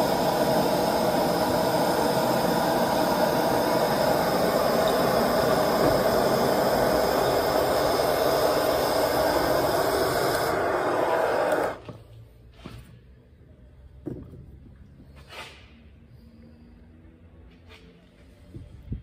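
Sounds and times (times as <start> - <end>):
gas burner roaring: 0.0 - 12.0.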